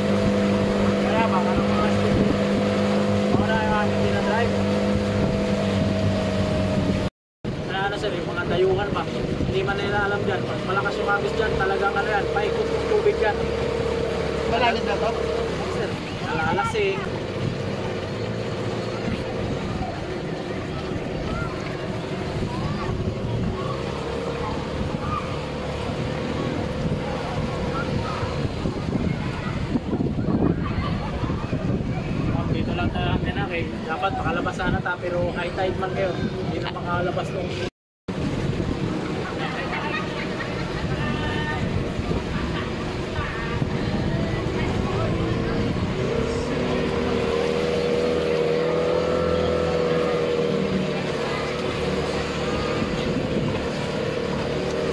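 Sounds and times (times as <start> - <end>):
motorboat engine hum: 0.0 - 54.9
water rushing past hull: 0.0 - 54.9
wind buffeting microphone: 0.0 - 54.9.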